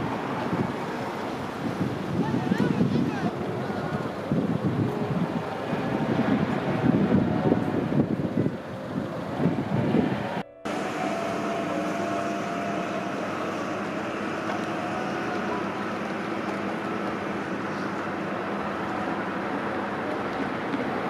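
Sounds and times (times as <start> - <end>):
car engine idling: 10.4 - 21.0.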